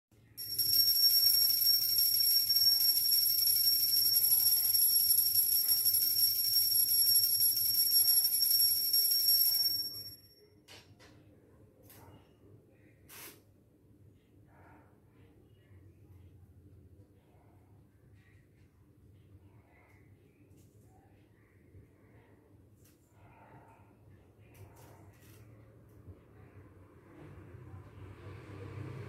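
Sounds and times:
hand bell ringing: 0.4 - 10.4.

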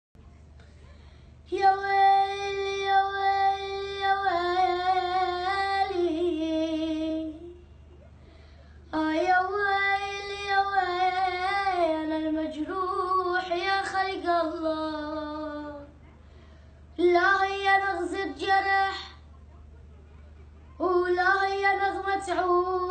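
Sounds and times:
boy singing unaccompanied: 1.5 - 7.6, 8.9 - 16.0, 17.0 - 19.2, 20.8 - 22.9.

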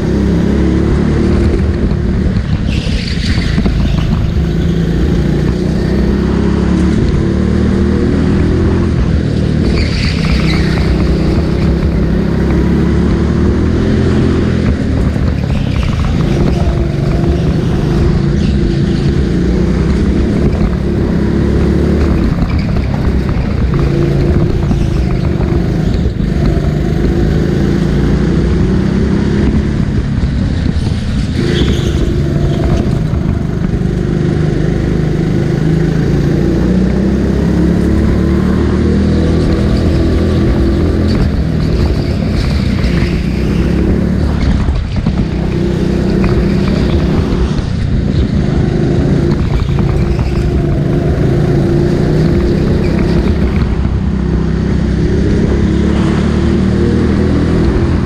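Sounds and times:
go-kart engine revving: 0.0 - 58.0.

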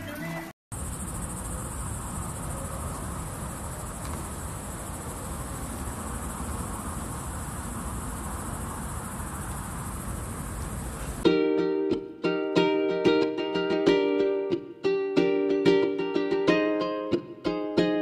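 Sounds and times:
insects chirring: 0.7 - 11.2.

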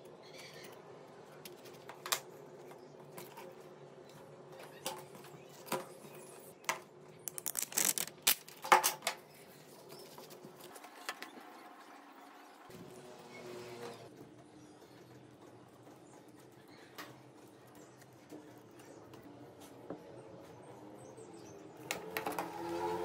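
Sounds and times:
small parts clicking: 7.2 - 8.9
plastic film peeled off: 7.3 - 8.6.

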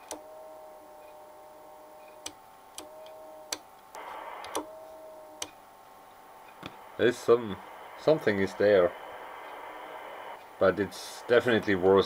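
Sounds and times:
faint steady tone: 0.0 - 12.0
transmitter keying clicks: 2.0 - 4.7
radio hiss: 4.0 - 5.4, 6.2 - 12.0.

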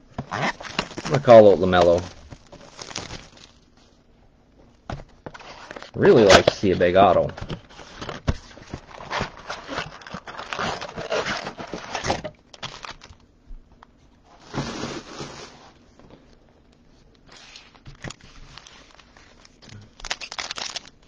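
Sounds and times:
card packs rustling and crinkling: 0.1 - 4.0, 4.9 - 13.2, 14.3 - 16.3, 17.2 - 21.0
cardboard box tearing open: 0.2 - 3.5, 8.9 - 13.0, 14.5 - 15.6.

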